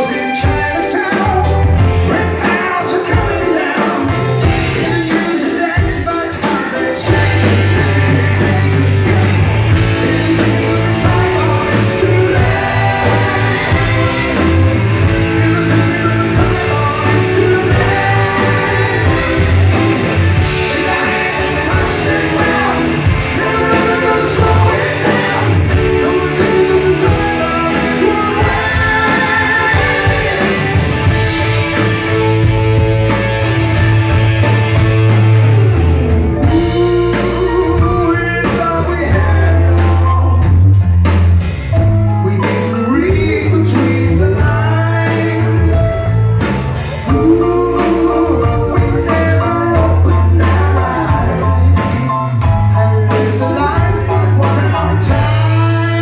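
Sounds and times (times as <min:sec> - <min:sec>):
lead singer: 0:00.0 - 0:56.0
live rock band: 0:00.0 - 0:56.0.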